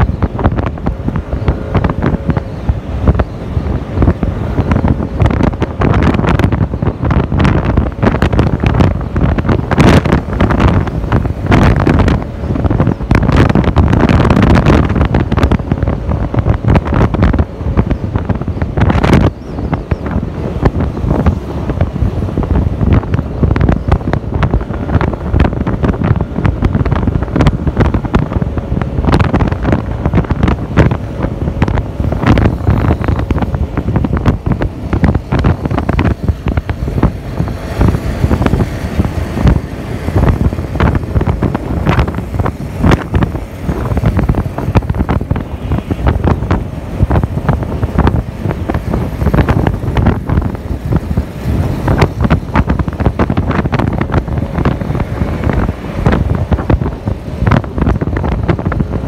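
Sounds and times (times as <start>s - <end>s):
road noise: 0.0s - 59.0s
wind buffeting microphone: 0.0s - 59.0s
scooter engine: 19.4s - 59.0s.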